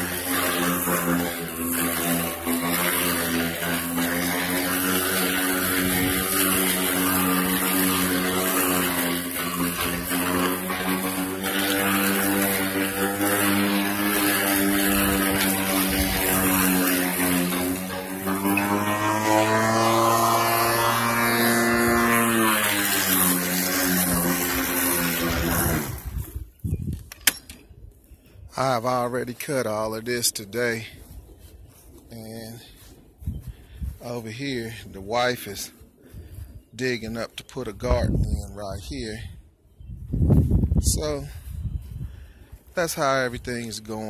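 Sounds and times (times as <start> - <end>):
electric lawn mower humming: 0.0 - 27.4.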